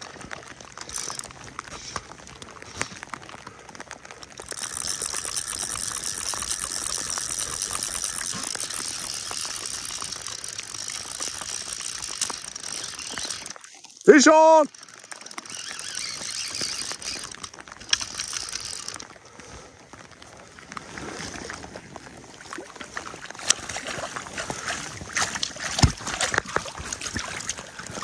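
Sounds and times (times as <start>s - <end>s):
fly reel clicking: 0.9s - 2.0s, 4.4s - 19.1s.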